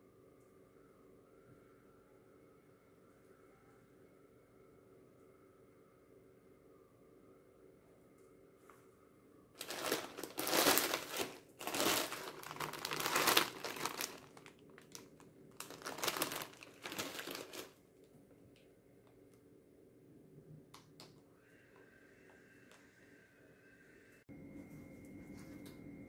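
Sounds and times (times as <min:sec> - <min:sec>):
plastic bag crinkling: 0:09.6 - 0:17.8.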